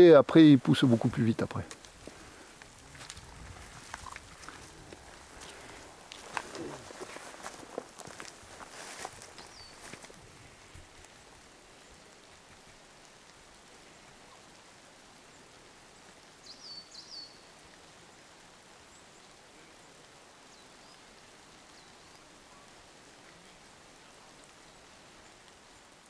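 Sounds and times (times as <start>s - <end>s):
light rain hiss: 0.0s - 26.0s
small bird chirping: 9.4s - 9.9s.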